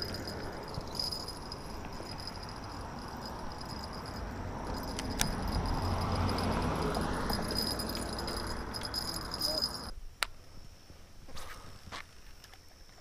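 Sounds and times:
gear rustling and jingling: 0.0 - 9.9
insects chirring: 0.0 - 13.0.

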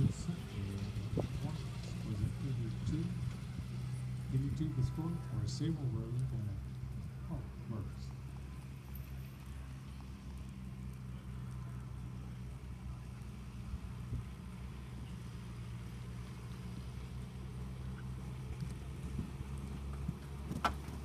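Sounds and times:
low mechanical hum: 0.0 - 21.0.

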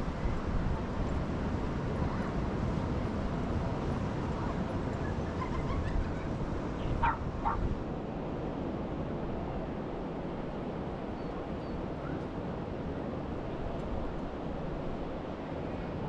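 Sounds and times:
dog barking: 7.0 - 7.6
dog yipping: 7.0 - 7.6.

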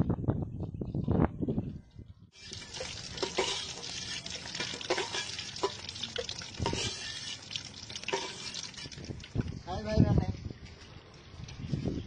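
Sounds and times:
metal spatula scraping and knocking: 2.4 - 6.0, 6.6 - 9.0
eggs sizzling in hot oil: 2.4 - 9.4.

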